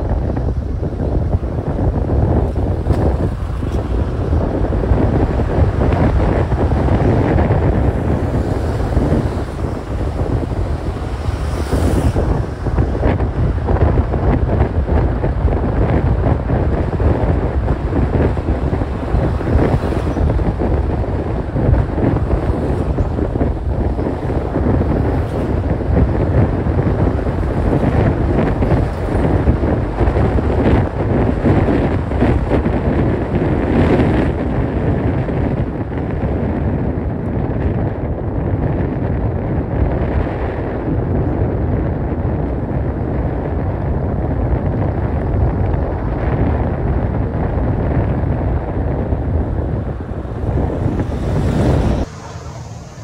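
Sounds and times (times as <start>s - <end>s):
road and tyre noise: 0.0s - 53.0s
wind buffeting microphone: 0.0s - 53.0s.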